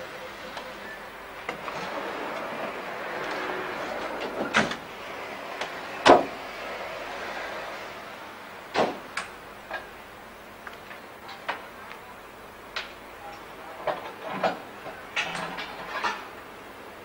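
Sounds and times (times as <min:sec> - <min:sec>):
train rumbling over points: 0:00.0 - 0:08.7.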